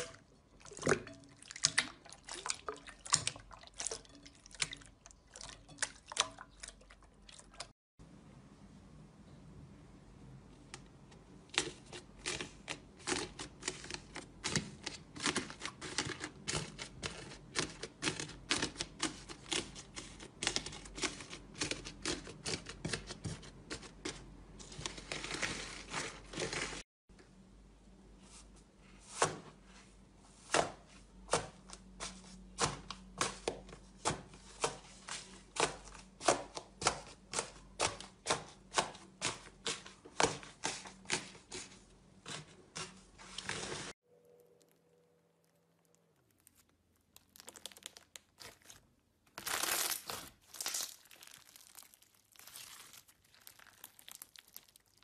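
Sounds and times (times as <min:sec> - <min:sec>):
crunchy slime crackling: 0:45.4 - 0:55.0.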